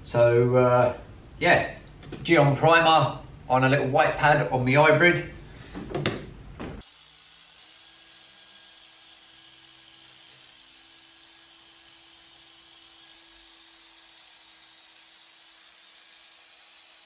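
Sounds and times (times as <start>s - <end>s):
polisher whining: 6.8s - 17.0s.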